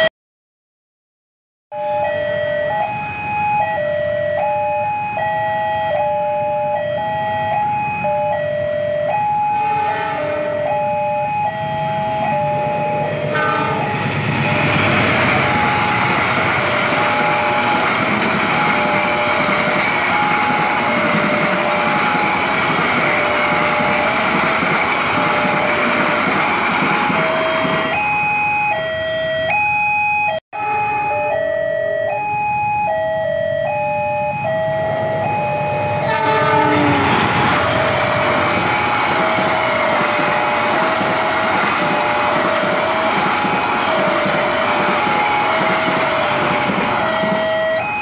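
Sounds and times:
two-tone crossing alarm: 1.7s - 48.0s
passing train running noise: 2.0s - 29.4s, 34.2s - 48.0s
train horn: 9.6s - 10.7s, 13.0s - 27.9s, 35.8s - 47.4s.

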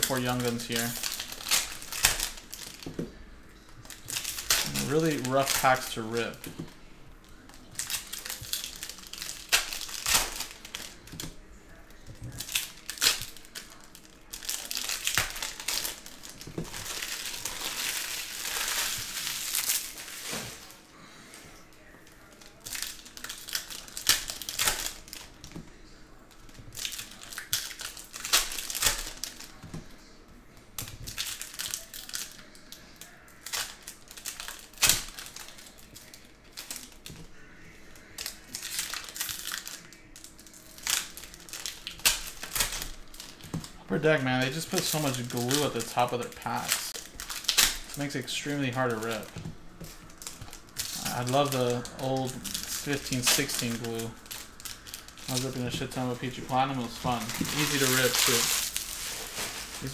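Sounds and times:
foil packs tearing and crinkling: 0.0s - 2.9s, 3.8s - 6.5s, 7.3s - 25.6s, 26.4s - 29.7s, 30.8s - 37.2s, 38.0s - 59.9s.

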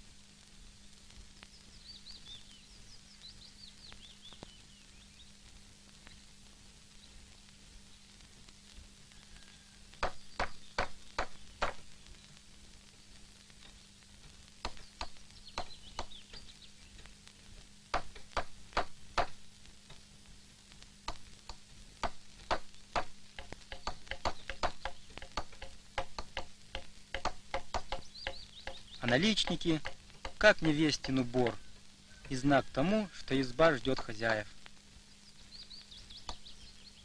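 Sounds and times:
steady low hum: 0.0s - 37.0s
hammer striking wood: 10.0s - 11.8s, 17.9s - 19.4s, 22.0s - 28.8s, 29.8s - 30.4s.

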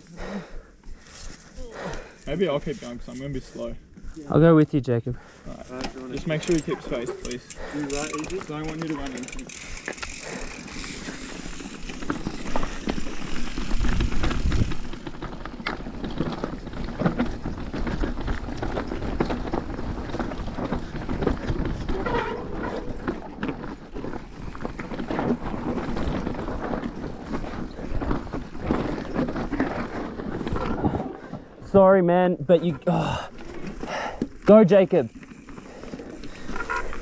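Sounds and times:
bike rattling: 5.2s - 37.0s
tyres crunching over stones: 5.7s - 31.6s.

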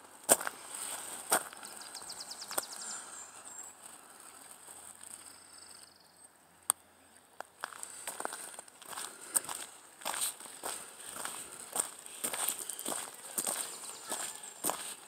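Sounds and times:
songbird calls: 1.5s - 3.8s, 12.2s - 15.0s.

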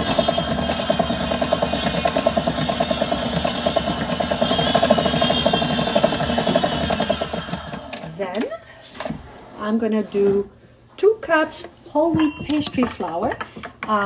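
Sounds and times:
electric stand mixer running: 0.0s - 8.1s.

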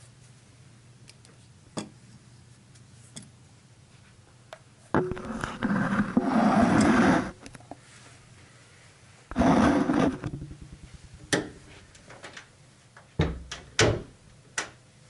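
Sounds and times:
fingers rubbing on microphone: 5.0s - 7.4s, 9.3s - 11.9s.

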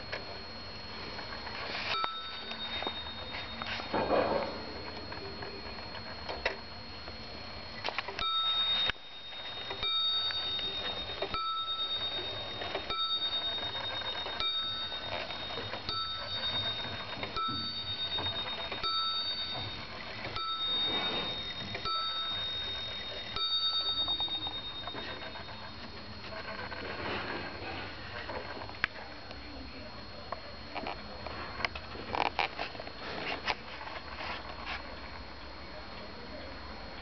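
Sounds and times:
wall clock bell striking: 1.9s - 4.8s, 8.2s - 25.9s.

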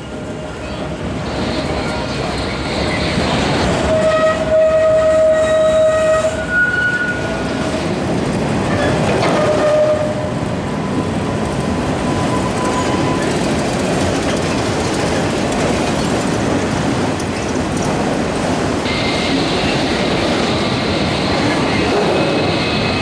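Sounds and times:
steel wheels rumbling on rail: 0.0s - 23.0s
high wheel squeal: 3.9s - 7.4s, 12.0s - 13.4s, 18.8s - 21.7s.

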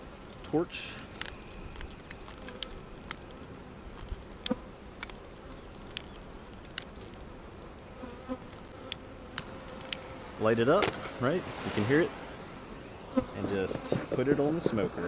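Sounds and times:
bees buzzing: 0.0s - 15.0s
sharp clicks: 0.3s - 7.2s.

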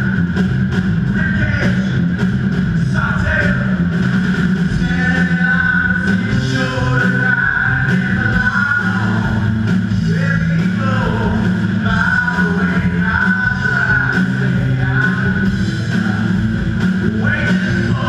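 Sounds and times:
drum kit: 0.0s - 18.0s
electric guitars: 0.0s - 18.0s
person singing: 4.7s - 9.4s, 10.0s - 16.4s.

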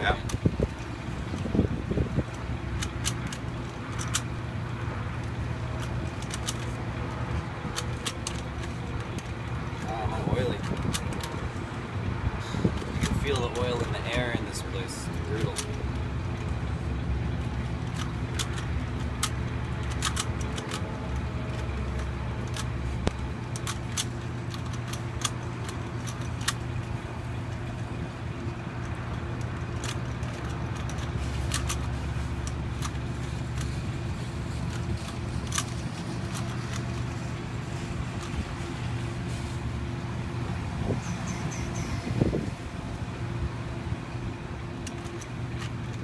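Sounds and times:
low mechanical hum: 0.0s - 46.0s
puzzle cube clicking: 2.8s - 4.3s, 17.8s - 26.6s, 29.4s - 33.7s, 34.6s - 37.3s.

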